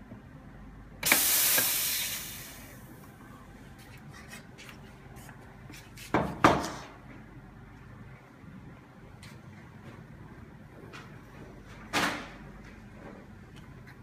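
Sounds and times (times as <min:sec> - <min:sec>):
steam wand hissing: 0:01.0 - 0:02.8.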